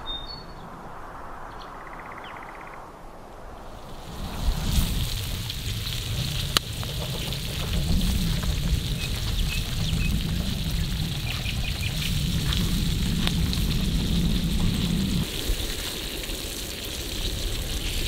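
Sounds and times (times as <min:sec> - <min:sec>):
sharp crack: 0:02.8 - 0:16.4
pops and crackles: 0:03.8 - 0:18.0
steak sizzling on a griddle: 0:04.0 - 0:18.0.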